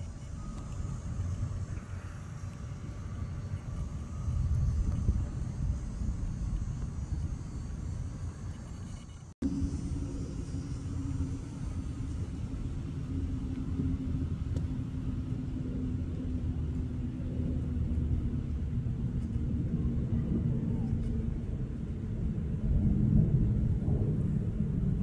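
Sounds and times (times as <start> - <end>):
distant jet airliner rumble: 0.0 - 25.0.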